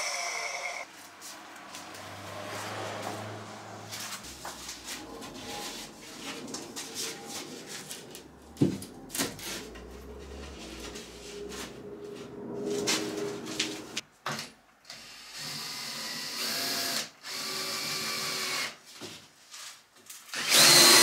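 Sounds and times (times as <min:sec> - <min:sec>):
wood sheet scraping and rubbing: 0:01.2 - 0:14.0.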